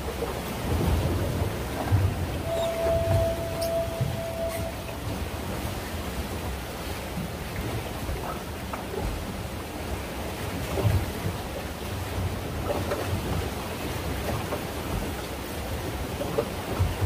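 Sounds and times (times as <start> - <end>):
open sea waves: 0.0 - 17.0
wind rumbling on microphone: 0.0 - 17.0.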